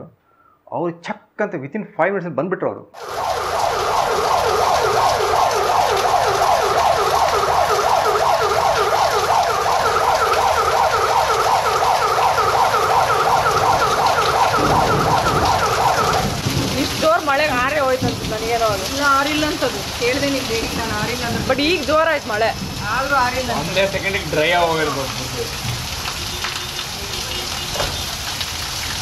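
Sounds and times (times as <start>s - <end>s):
fire engine siren wailing: 3.0s - 17.0s
heavy rain: 3.0s - 29.0s.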